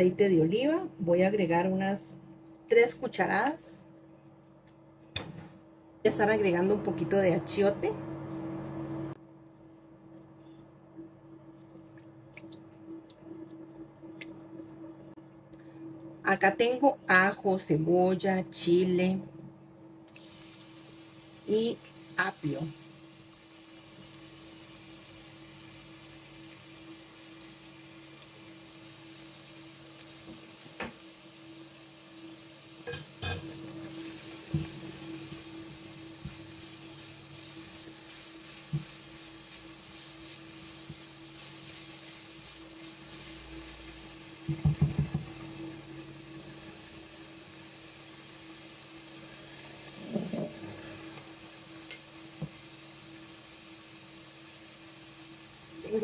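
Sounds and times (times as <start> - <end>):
vegetables sizzling in oil: 20.1 - 56.0.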